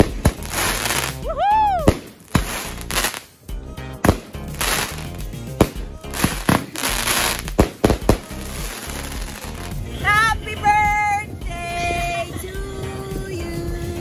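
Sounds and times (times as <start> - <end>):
fireworks bangs: 0.0 - 1.2, 1.8 - 3.3, 4.0 - 9.8
fireworks crackling: 0.0 - 10.2
background music: 0.0 - 14.0.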